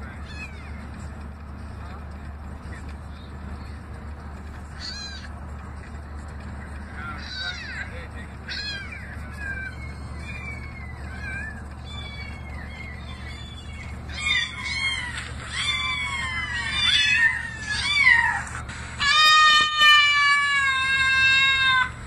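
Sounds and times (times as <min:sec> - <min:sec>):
low vehicle hum: 0:00.0 - 0:22.0
cat meowing: 0:04.8 - 0:05.3, 0:08.5 - 0:18.4, 0:19.0 - 0:21.9.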